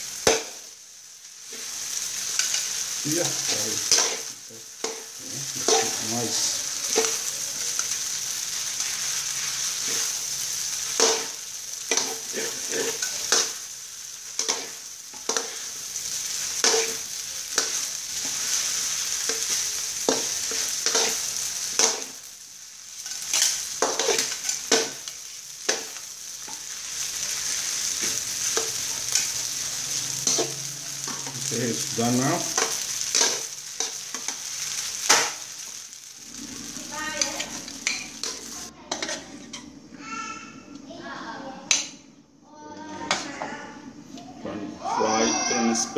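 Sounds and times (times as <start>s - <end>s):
noodles sizzling in a wok: 0.0s - 40.3s
metal spatula scraping a wok: 3.4s - 13.6s, 14.4s - 22.1s, 22.9s - 31.4s, 32.5s - 35.8s, 37.2s - 39.6s.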